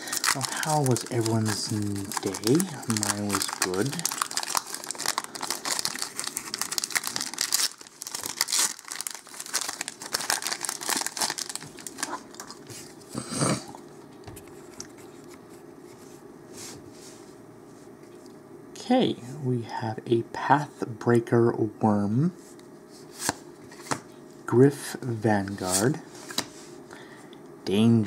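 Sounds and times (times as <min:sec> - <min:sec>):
foil wrapper tearing and crinkling: 0:00.0 - 0:12.7.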